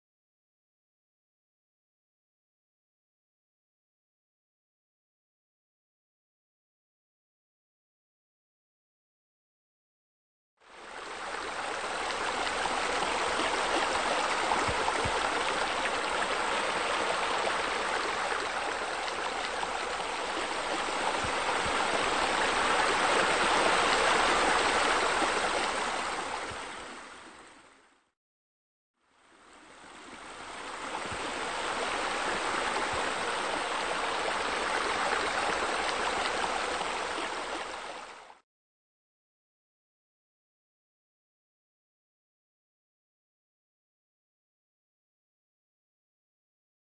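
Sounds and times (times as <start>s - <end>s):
rushing waterfall water: 10.7s - 28.0s, 29.3s - 38.4s.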